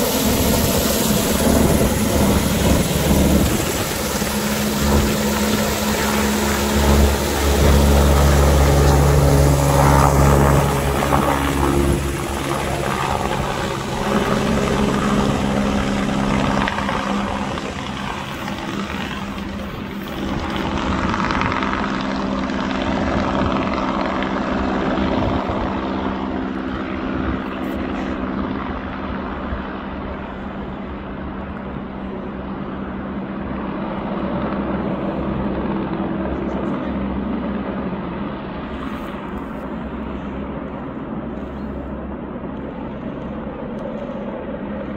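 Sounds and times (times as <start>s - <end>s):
helicopter rotor and engine drone: 0.0s - 44.9s.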